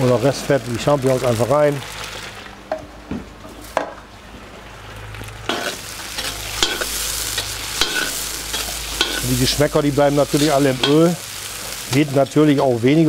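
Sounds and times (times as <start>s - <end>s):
mushrooms sizzling in hot oil: 0.0s - 2.6s, 4.6s - 13.0s
metal spatula scraping a pan: 5.5s - 9.6s, 10.3s - 11.1s.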